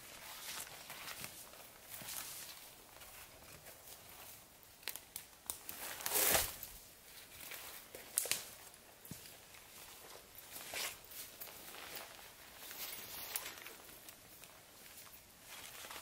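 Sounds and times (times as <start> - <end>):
dry twigs crackling and snapping: 4.6 - 9.4.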